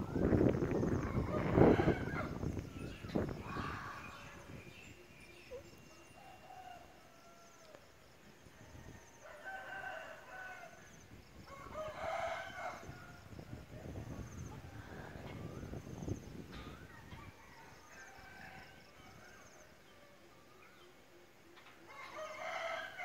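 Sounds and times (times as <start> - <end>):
rooster crowing: 1.0 - 4.4, 8.8 - 10.9, 11.5 - 13.2, 16.8 - 20.3, 21.9 - 23.0.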